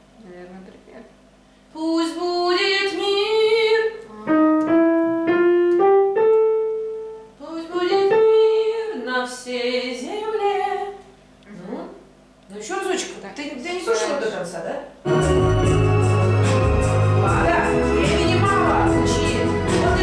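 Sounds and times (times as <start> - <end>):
woman singing: 1.8 - 4.1, 7.4 - 11.0, 17.1 - 20.0
digital piano: 4.2 - 7.4, 15.0 - 20.0.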